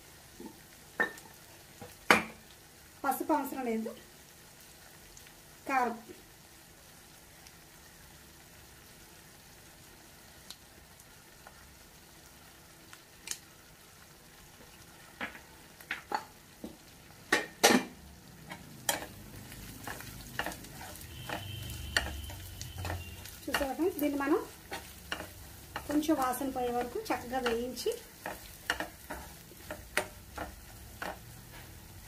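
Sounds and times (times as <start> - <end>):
spices sizzling in oil: 0.0 - 32.0
spoon clicking against pan: 21.2 - 22.2, 24.7 - 26.2, 26.8 - 31.3.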